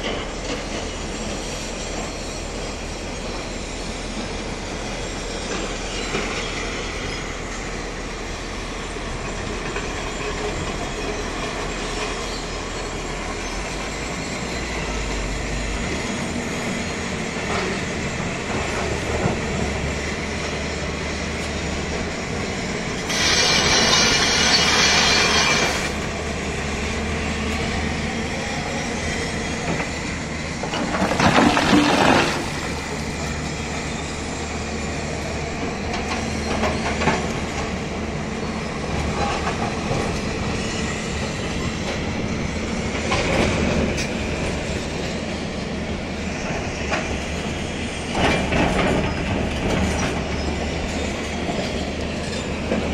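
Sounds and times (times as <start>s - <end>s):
clanking tracks and hydraulics: 0.0s - 52.9s
loud high hiss: 23.0s - 26.0s.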